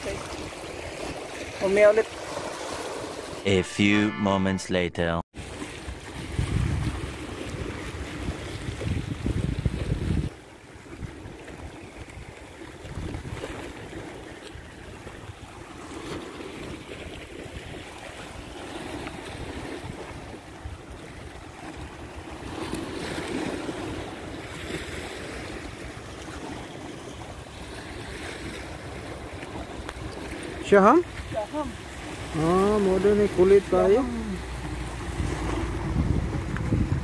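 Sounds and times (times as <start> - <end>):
small waves washing against rocks: 0.0 - 3.4, 5.4 - 37.0
wind blowing across microphone: 6.0 - 13.9, 34.6 - 37.0.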